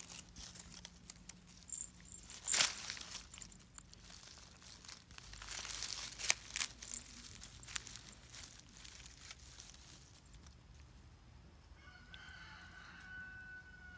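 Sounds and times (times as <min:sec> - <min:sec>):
rustling of dry grass: 0:00.0 - 0:11.0.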